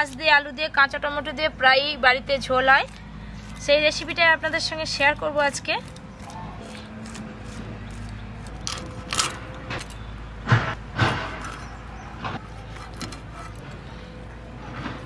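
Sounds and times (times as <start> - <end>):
blade scraping fish scales: 5.0 - 9.4, 12.4 - 14.0.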